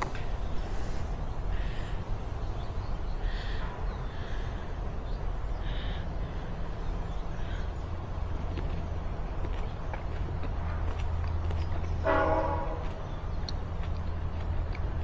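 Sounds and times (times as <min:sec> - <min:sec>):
low background rumble: 0:00.0 - 0:15.0
bird harsh calls: 0:00.1 - 0:08.5.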